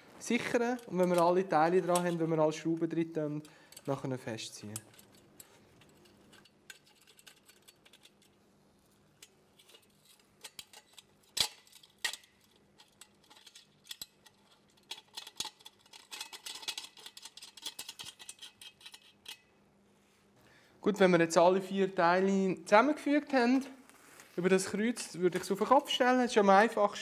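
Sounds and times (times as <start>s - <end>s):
metal parts clinking: 3.4s - 8.4s, 9.2s - 19.4s.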